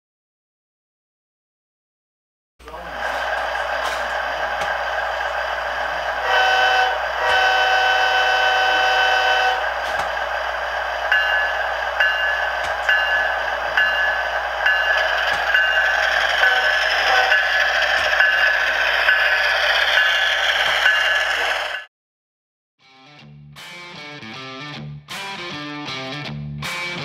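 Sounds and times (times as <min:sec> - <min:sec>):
diesel engine running: 0:02.6 - 0:20.7
locomotive air horn: 0:06.2 - 0:09.7, 0:16.4 - 0:17.4
locomotive bell ringing: 0:11.0 - 0:21.9.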